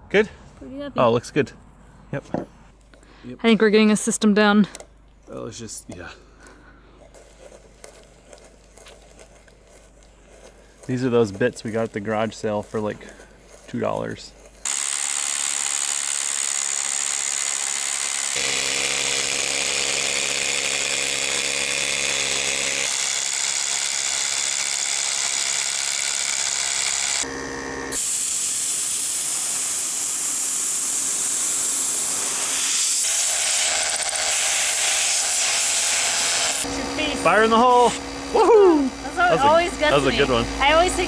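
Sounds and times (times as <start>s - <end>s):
hammer drill boring into concrete: 14.6s - 38.1s.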